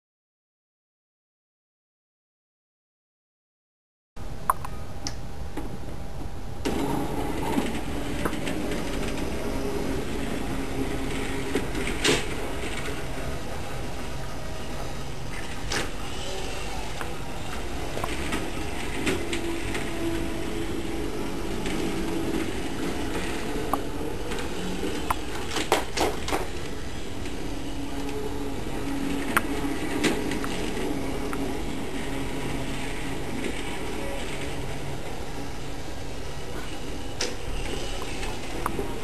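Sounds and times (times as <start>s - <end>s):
toy train motor whirring: 6.7s - 35.3s, 36.6s - 39.0s
sharp plastic clicks and clacks: 21.6s - 26.7s.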